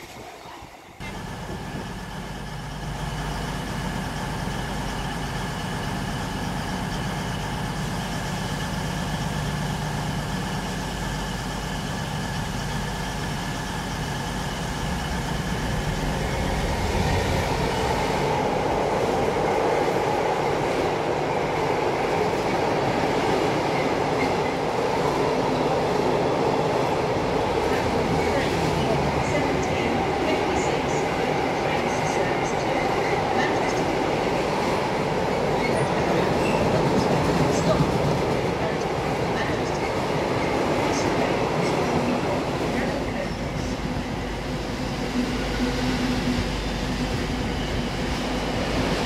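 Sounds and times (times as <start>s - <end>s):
train wagons rumbling on rails: 0.0s - 49.0s
diesel engine hum: 1.0s - 19.6s.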